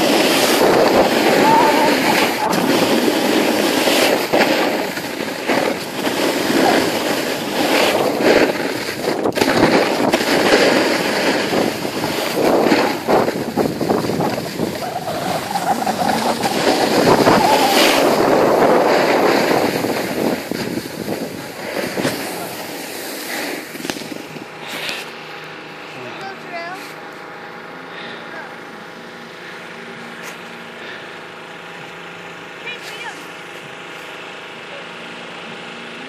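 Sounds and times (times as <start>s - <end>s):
wind on microphone: 0.0s - 5.2s, 6.5s - 22.4s
skis scraping over snow: 0.0s - 25.2s.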